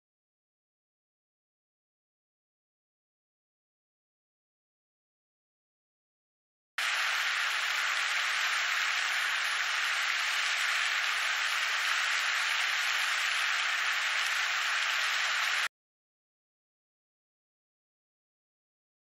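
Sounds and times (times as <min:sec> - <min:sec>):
steady hiss: 0:06.8 - 0:15.7.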